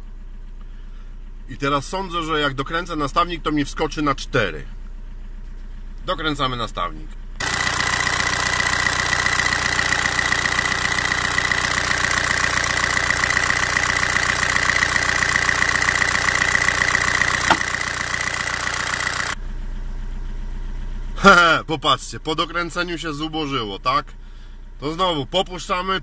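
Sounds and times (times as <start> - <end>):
diesel engine clattering: 0.0 - 26.0
sharp click: 17.4 - 17.7.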